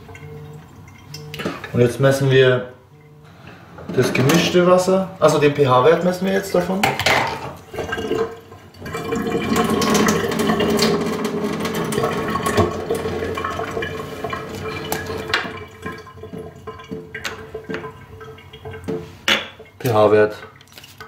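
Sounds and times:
water pouring into glass: 7.6s - 19.8s.

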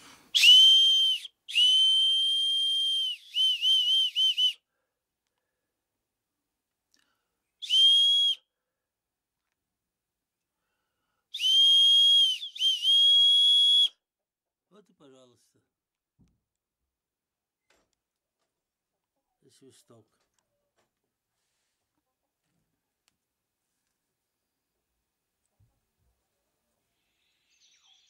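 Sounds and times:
bark whistle blasts: 0.4s - 4.6s, 7.6s - 8.4s, 11.4s - 13.9s.

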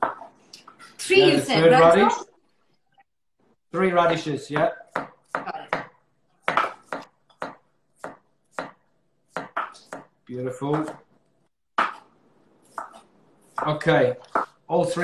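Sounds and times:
knife chopping on cutting board: 4.0s - 11.1s, 11.8s - 14.6s.

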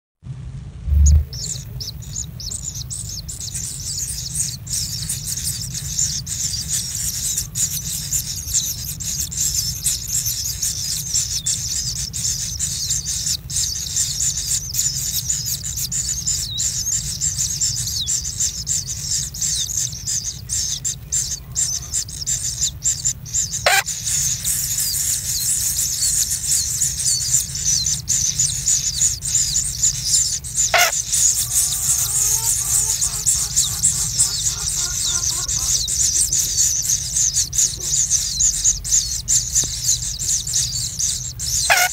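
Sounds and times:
steady low hum: 0.3s - 12.7s, 13.6s - 41.7s
brief sharp sounds: 0.8s - 1.4s
chicks begging calls: 1.0s - 41.9s.

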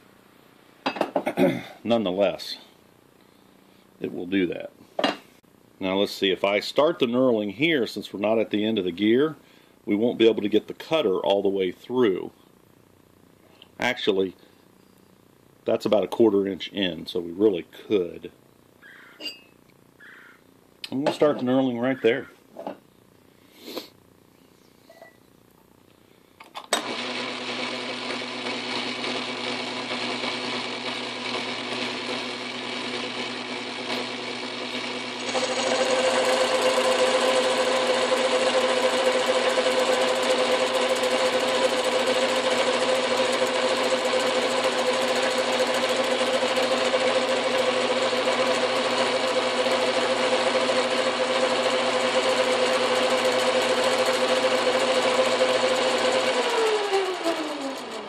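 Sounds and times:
metal lathe running: 26.8s - 58.0s.

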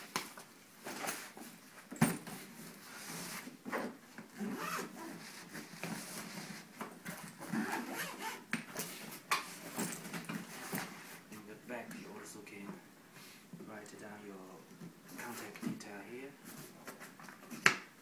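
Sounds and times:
suitcase zipper rasps: 3.7s - 5.4s, 7.4s - 8.5s
fabric rubbing: 4.4s - 6.6s, 7.6s - 8.4s.

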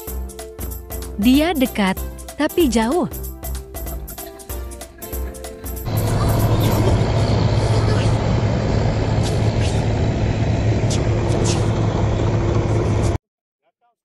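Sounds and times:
background music: 0.0s - 7.6s
vehicle engine running: 5.8s - 13.2s.

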